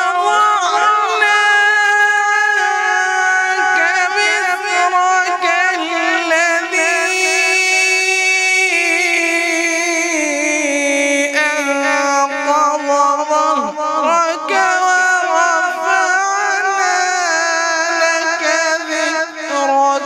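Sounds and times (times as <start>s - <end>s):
man reciting melodically over pa: 0.0s - 20.0s.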